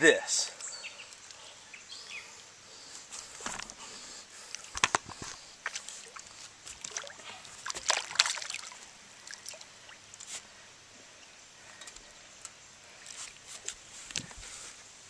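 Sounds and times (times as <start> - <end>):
water splashing from hooked fish: 5.6 - 10.0.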